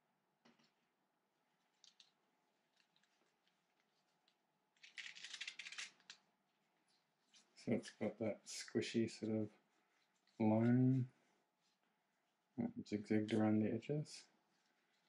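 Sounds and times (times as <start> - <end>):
packaging crackling rustle: 1.7 - 6.2.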